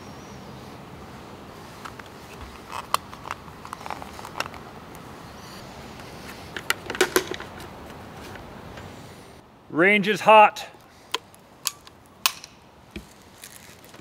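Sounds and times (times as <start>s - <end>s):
safety gear clicks and rustling: 1.8s - 5.0s, 11.1s - 14.0s.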